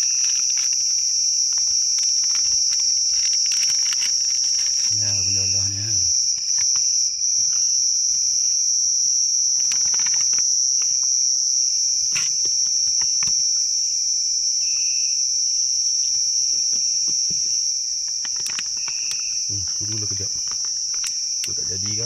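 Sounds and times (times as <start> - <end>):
food pouch rustling: 0.0 - 6.8
night insects droning: 0.0 - 22.0.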